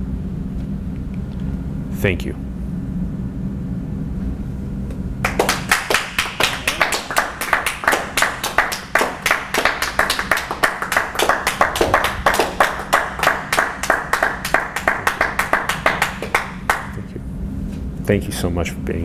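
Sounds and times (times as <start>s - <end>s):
low steady hum: 0.0s - 19.0s
audience applauding: 5.2s - 17.1s.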